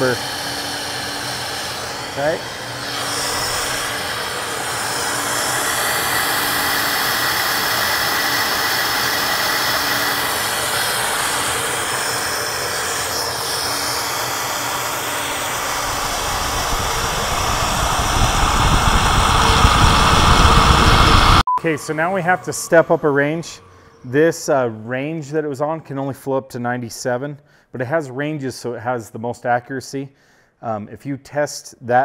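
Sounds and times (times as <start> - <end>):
fans pulling rush of air: 0.0 - 22.8.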